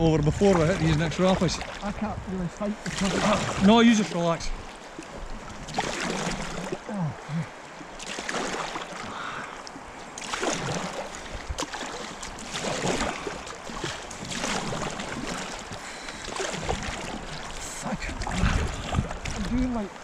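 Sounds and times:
river current rushing and splashing: 0.0 - 20.0.

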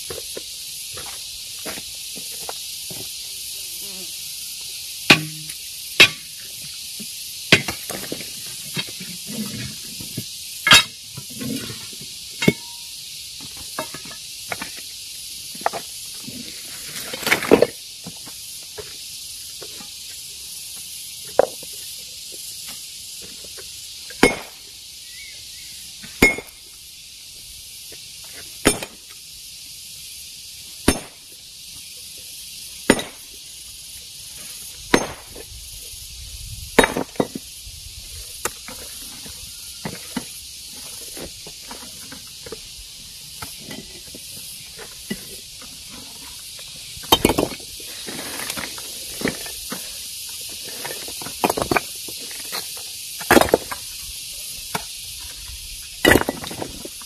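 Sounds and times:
steady high hiss: 0.0 - 57.0
hammer striking rock: 5.1 - 6.3, 7.5 - 8.0, 24.2 - 24.6, 26.2 - 26.6, 28.6 - 29.0, 30.9 - 31.2, 32.9 - 33.2, 34.9 - 35.4, 36.8 - 37.3, 56.0 - 56.6.

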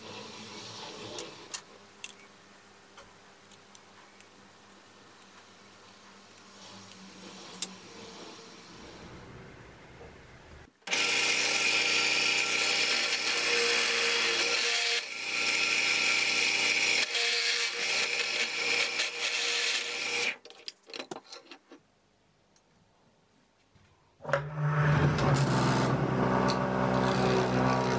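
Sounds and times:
drill press drilling: 10.9 - 20.4.

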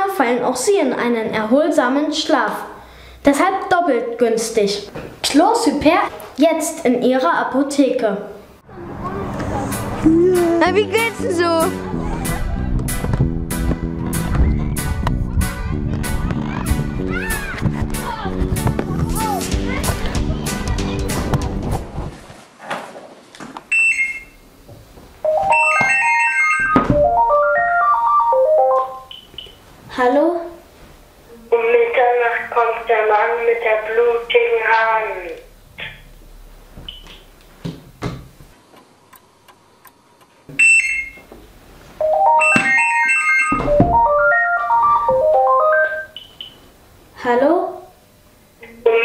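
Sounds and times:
phone ringtone electronic melody: 25.2 - 29.1, 42.0 - 46.3
short beep: 42.0 - 46.6.

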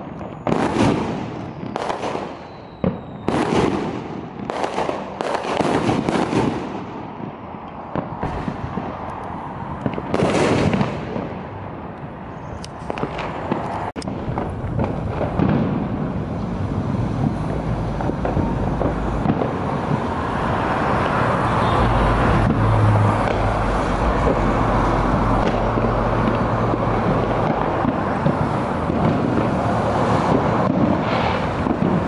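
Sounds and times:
cars driving past: 0.1 - 32.0
low engine hum: 14.1 - 30.9.

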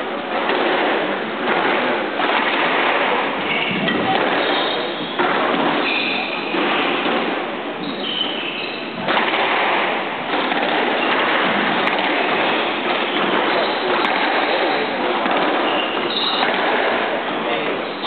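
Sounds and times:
squash ball thuds: 0.0 - 18.0
steady noisy hiss: 0.0 - 18.0
shoes squeaking on wooden floor: 7.8 - 9.0, 15.5 - 16.5.

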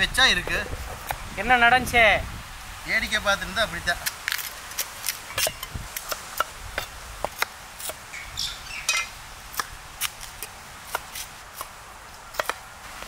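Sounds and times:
cleaver chopping on wooden block: 4.8 - 8.0, 12.4 - 12.6.

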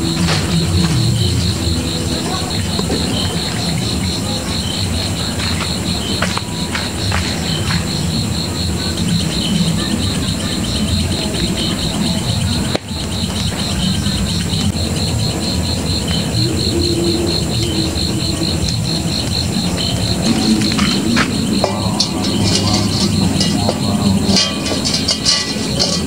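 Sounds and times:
campfire crackling: 0.0 - 26.0
crickets chirring: 0.0 - 26.0
burning sticks snapping: 18.6 - 26.0.

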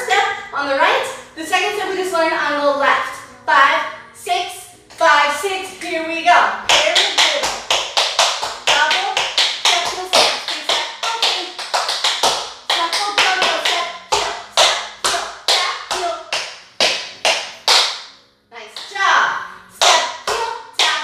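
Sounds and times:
tap shoes on hard floor: 6.7 - 18.0.

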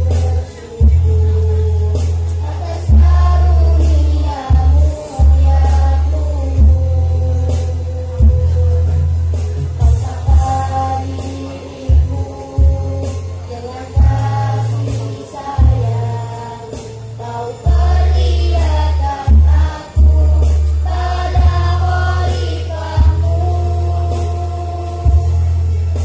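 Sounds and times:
deep held bass notes: 0.0 - 11.2, 11.9 - 26.0
choir singing: 2.4 - 6.6, 13.5 - 25.2.

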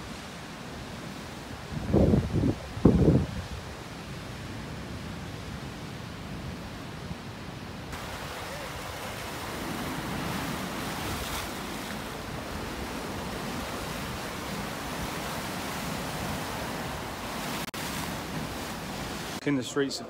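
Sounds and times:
wind rushing across microphone: 0.0 - 19.4
sea waves washing onto rocks: 7.8 - 19.4.

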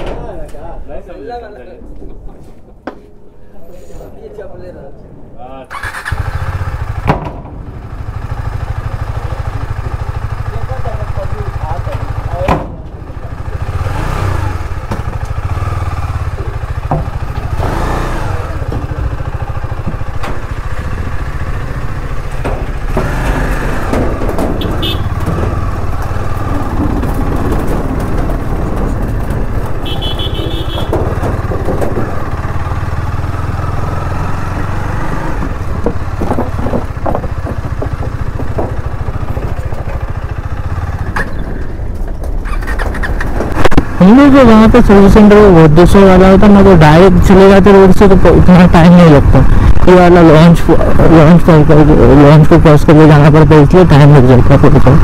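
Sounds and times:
motorcycle engine at low revs: 5.7 - 55.0
short knocks and clatters: 18.6 - 32.8, 34.6 - 43.8.

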